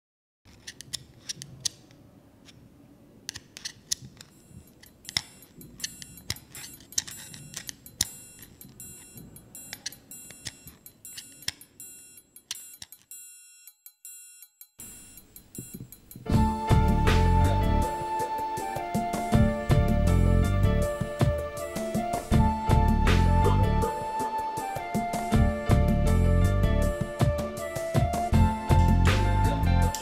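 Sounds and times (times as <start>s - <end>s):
sharp clicks and ticks: 3.3s - 14.8s.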